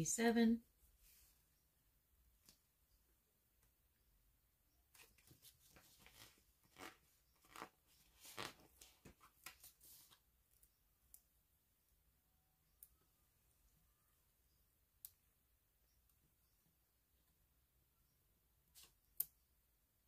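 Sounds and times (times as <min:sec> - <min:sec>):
sticker sheet crackling: 0:05.0 - 0:10.0.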